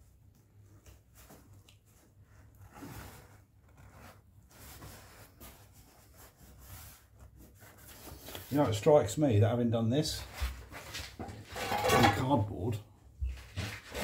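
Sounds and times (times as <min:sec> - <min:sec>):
cardboard rustling and scraping: 0:01.0 - 0:08.9, 0:10.1 - 0:12.4, 0:13.2 - 0:14.0.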